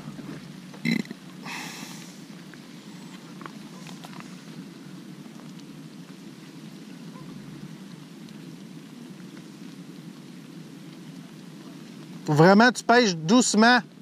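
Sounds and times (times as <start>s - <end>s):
rain falling on water: 0.0s - 14.0s.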